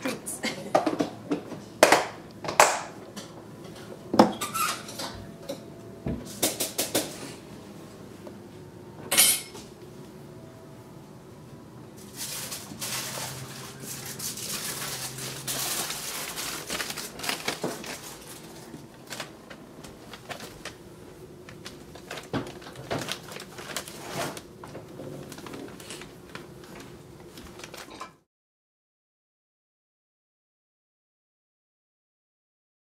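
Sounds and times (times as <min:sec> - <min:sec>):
plastic wrapping crinkling: 0:12.0 - 0:28.1.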